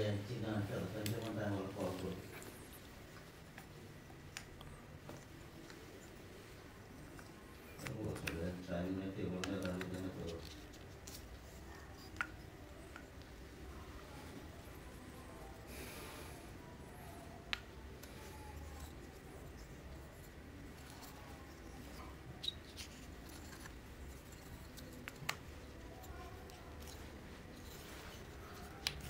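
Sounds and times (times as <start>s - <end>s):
handling small objects: 0.8s - 15.6s, 16.6s - 29.0s.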